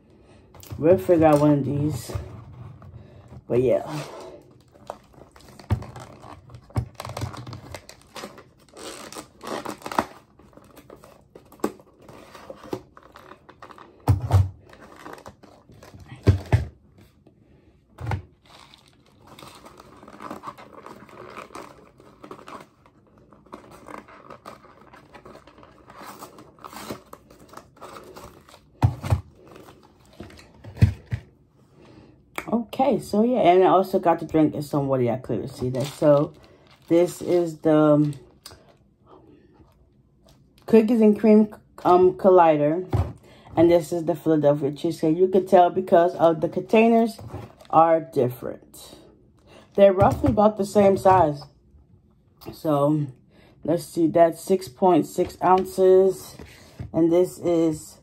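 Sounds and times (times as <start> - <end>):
paperboard tearing and crinkling: 3.8 - 16.2, 18.3 - 30.8.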